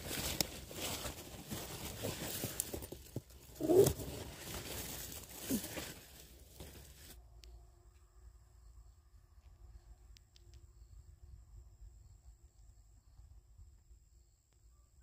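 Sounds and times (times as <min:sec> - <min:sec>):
vines rustling and tearing: 0:00.0 - 0:07.2.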